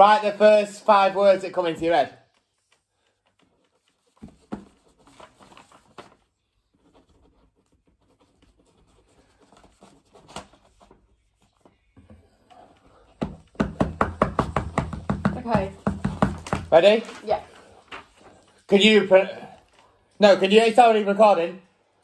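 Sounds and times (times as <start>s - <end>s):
paper rustling: 2.2s - 13.0s, 15.8s - 20.0s.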